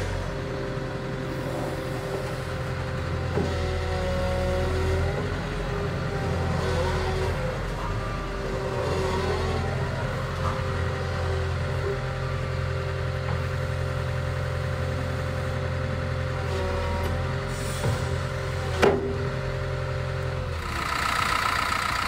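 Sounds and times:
diesel engine running: 0.0s - 22.0s
hydraulic whine: 1.1s - 12.5s, 16.3s - 19.4s.

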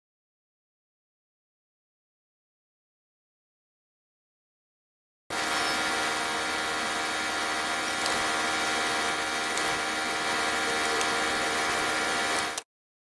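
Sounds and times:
woodworking machinery drone: 5.3s - 12.6s.

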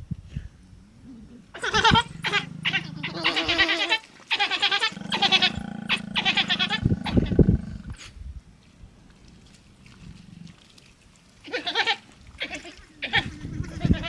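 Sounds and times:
wild dogs twittering calls: 1.1s - 7.9s.

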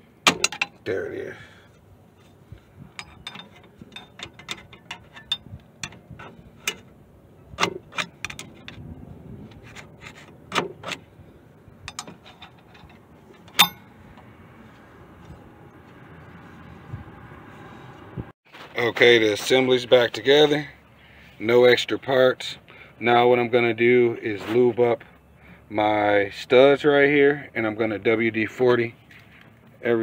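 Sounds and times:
metallic clicks of brake hardware: 0.2s - 0.9s, 2.6s - 8.9s, 11.8s - 14.3s.

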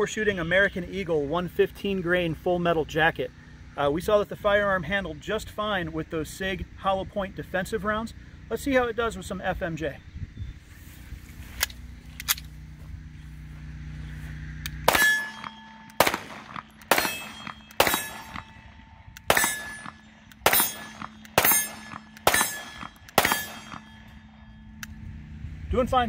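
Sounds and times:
pistol shots with metallic ring: 14.8s - 24.8s.

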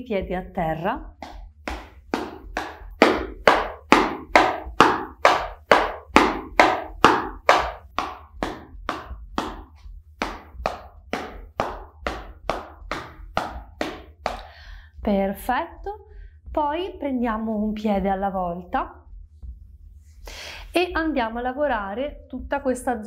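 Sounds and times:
bare feet stamping on straw mat: 1.1s - 15.3s.

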